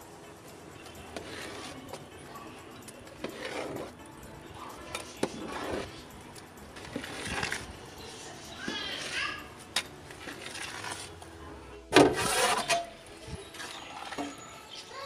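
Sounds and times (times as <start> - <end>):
ladle scraping through rice: 1.1 - 6.1, 6.7 - 11.2, 12.0 - 14.3.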